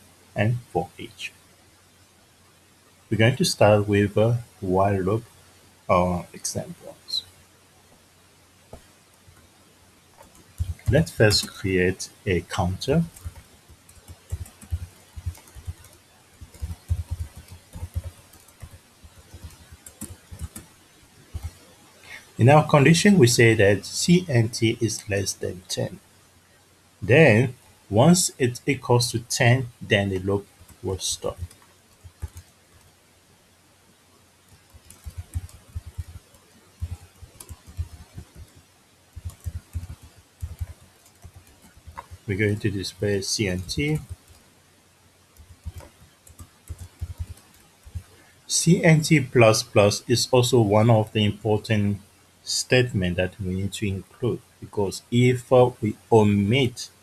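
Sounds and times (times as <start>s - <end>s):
computer keyboard typing: 10.2s - 21.7s, 28.4s - 32.9s, 34.5s - 44.5s, 45.4s - 48.2s.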